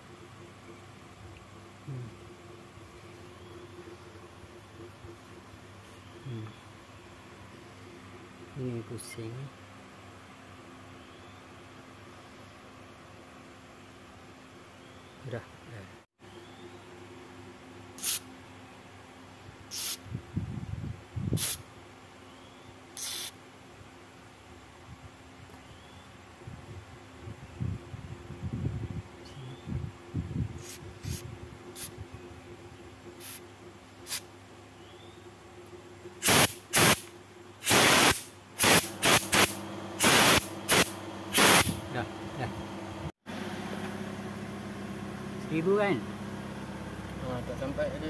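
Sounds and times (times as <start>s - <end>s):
aerosol spray hissing bursts: 18.0s - 18.2s, 19.7s - 20.0s, 21.4s - 21.6s, 23.0s - 23.3s, 30.6s - 31.2s, 33.2s - 33.4s, 34.1s - 34.3s, 36.2s - 41.8s.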